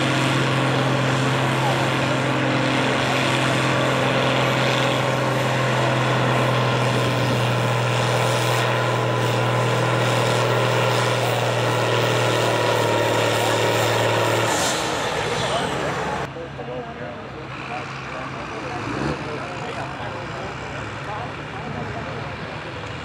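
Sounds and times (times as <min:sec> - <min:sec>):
tractor engine droning under load: 0:00.0 - 0:23.0.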